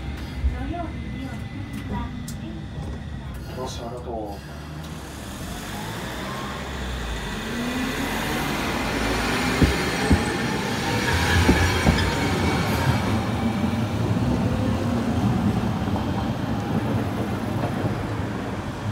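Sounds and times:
tram motor whine rising: 4.5s - 18.8s
wheels clacking on rails: 8.6s - 13.0s.

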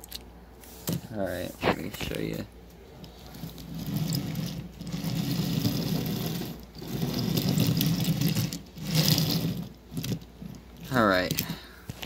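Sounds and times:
toy train rattling on wood: 3.3s - 11.6s.

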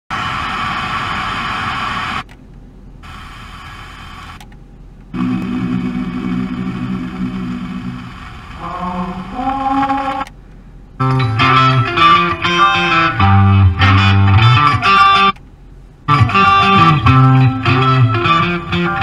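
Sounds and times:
hissy radio signal: 0.1s - 2.2s, 3.0s - 4.4s, 5.1s - 10.3s
radio station long held notes: 5.1s - 15.4s, 16.0s - 19.0s.

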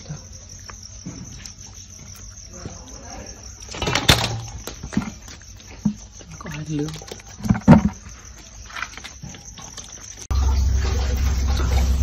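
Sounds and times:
crickets chirping: 0.0s - 12.0s
fish slapping and rattling in basket: 3.7s - 10.3s.

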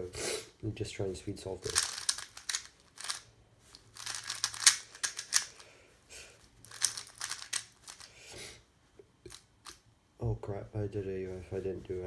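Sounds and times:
puzzle cube clicking: 1.6s - 3.2s, 4.0s - 5.6s, 6.6s - 8.1s.

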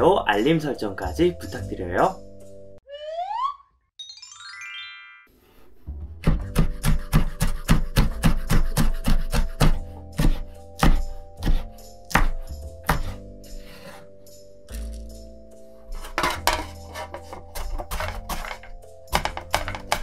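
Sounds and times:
background music: 0.0s - 2.8s, 4.0s - 20.0s
knife chopping on wooden board: 6.2s - 13.2s, 16.0s - 20.0s.

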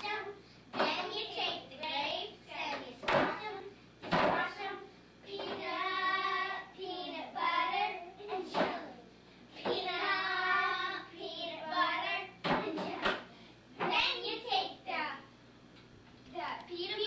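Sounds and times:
children singing: 0.0s - 1.6s, 2.5s - 9.0s, 9.6s - 13.2s.

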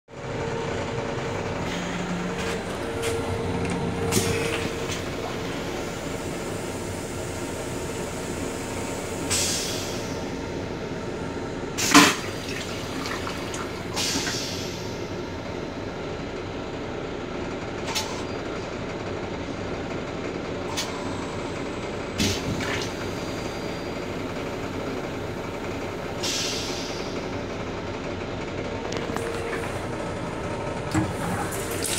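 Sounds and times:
train car rumble: 0.1s - 31.9s
water draining from toilet bowl: 11.9s - 14.3s, 30.9s - 31.9s
water running down bowl: 31.5s - 31.9s.

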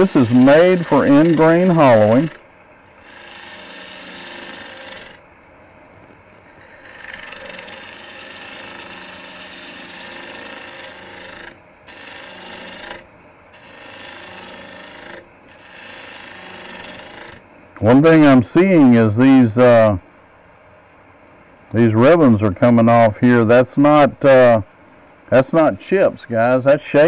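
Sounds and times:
lathe tool cutting wood: 0.0s - 5.2s, 6.4s - 18.4s
lathe humming: 0.0s - 27.0s.

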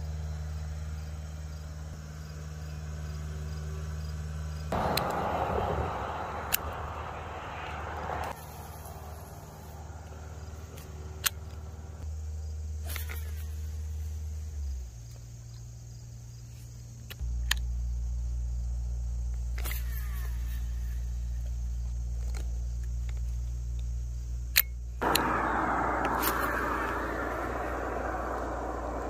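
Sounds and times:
sharp clicks: 24.5s - 25.4s
low rumble: 25.0s - 29.0s.

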